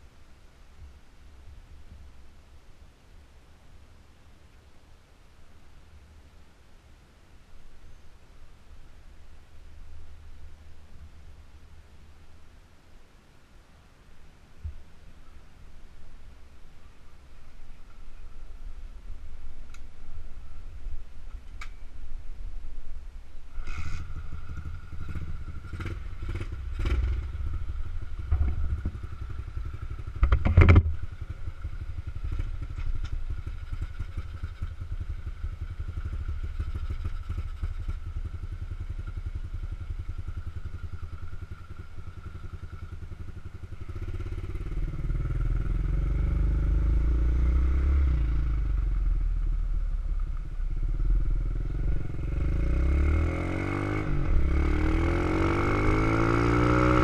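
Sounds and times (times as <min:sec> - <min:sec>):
small motorbike engine running: 0:23.6 - 0:48.9
sharp clicks and knocks: 0:30.2 - 0:31.0.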